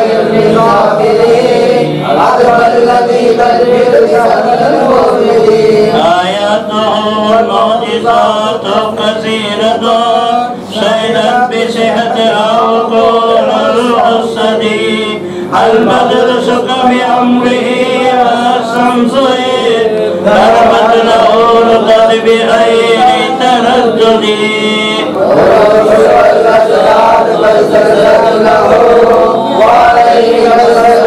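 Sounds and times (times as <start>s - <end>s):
men chanting: 0.0s - 31.0s.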